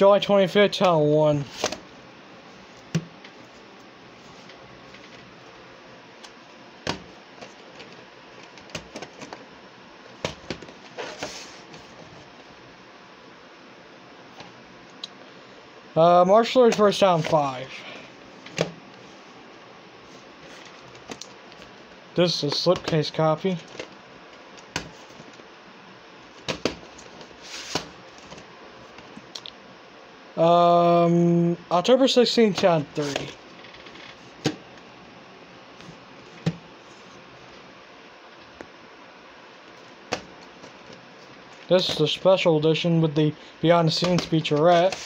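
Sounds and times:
sliding rustle: 10.8s - 12.3s, 27.3s - 28.4s.

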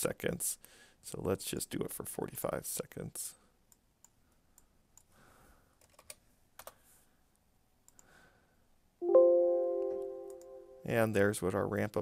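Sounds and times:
computer keyboard typing: 5.8s - 6.8s
loud multi-tone chime: 9.0s - 10.9s.

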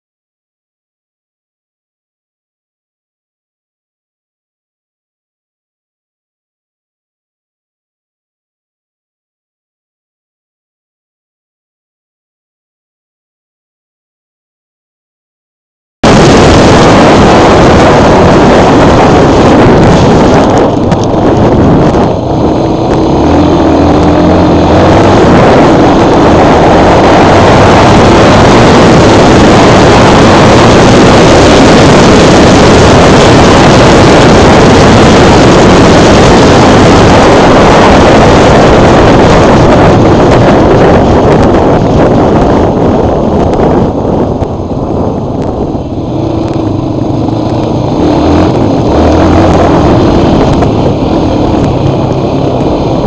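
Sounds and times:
wind buffeting microphone: 16.0s - 53.0s.

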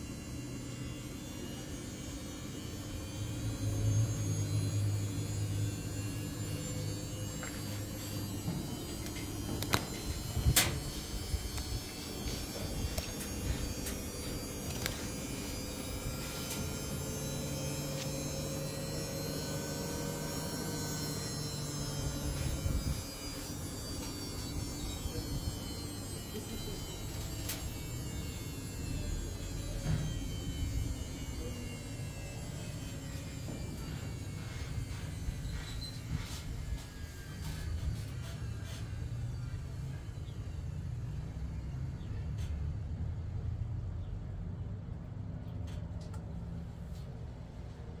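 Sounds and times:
washing machine motor humming: 0.0s - 38.8s.

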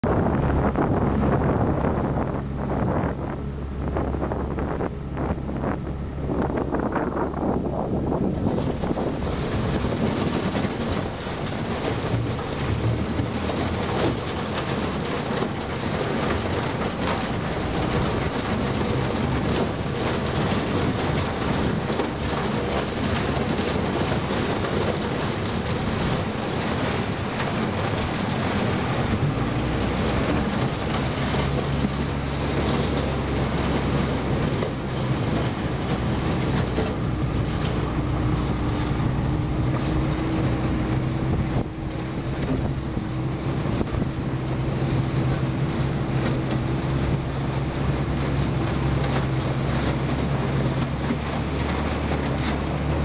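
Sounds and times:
boat motor running: 0.0s - 53.0s.

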